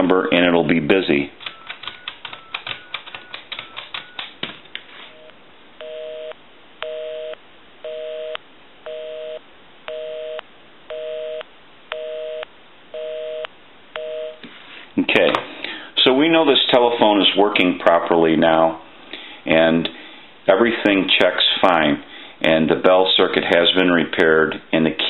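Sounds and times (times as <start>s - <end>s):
telephone busy signal: 1.4s - 4.3s, 5.2s - 14.4s
touch-tone keypad beeps: 1.4s - 4.4s.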